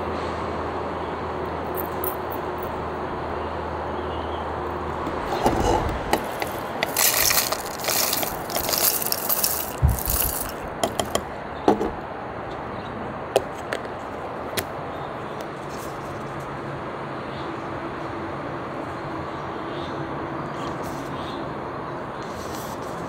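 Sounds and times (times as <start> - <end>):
dry kelp rustling and scraping: 5.2 - 10.7.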